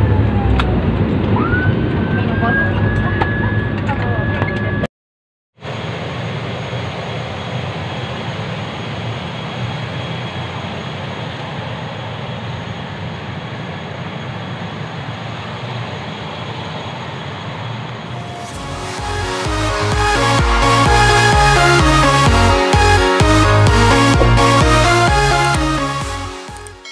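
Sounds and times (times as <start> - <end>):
aircraft engine drone: 5.6 - 26.9
high whine: 5.6 - 26.9.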